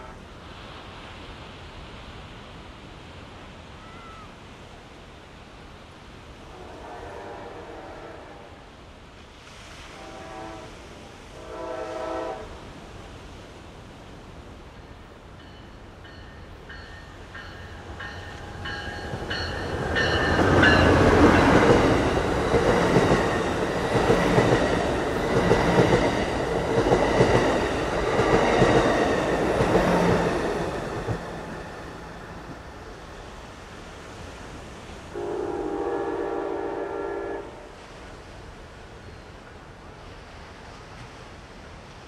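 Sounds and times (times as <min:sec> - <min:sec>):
train air horn: 0:06.5 - 0:08.6, 0:09.7 - 0:12.6, 0:35.1 - 0:37.8
train wheels clattering on rails: 0:15.3 - 0:31.8.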